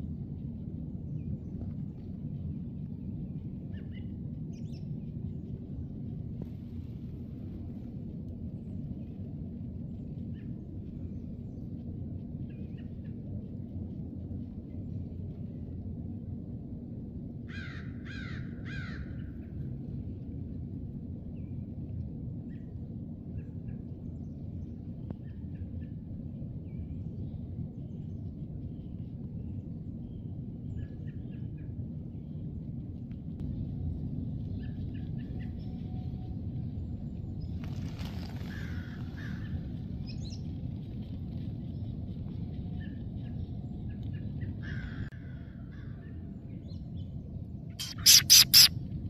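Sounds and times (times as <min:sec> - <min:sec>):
steady low rumble: 0:00.0 - 0:49.0
distant crows cawing: 0:17.5 - 0:19.3, 0:38.5 - 0:39.6, 0:44.6 - 0:46.2
loud short bursts: 0:47.8 - 0:48.7
small bird chirps: 0:47.8 - 0:48.7.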